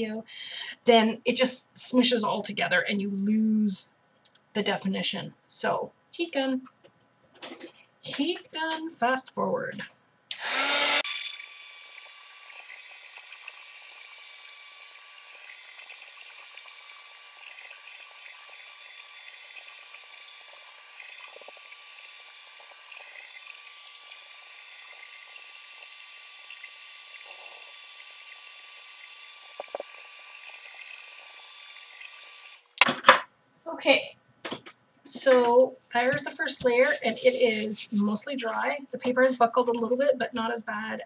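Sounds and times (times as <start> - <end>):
heat gun blowing hiss: 10.3 - 32.8.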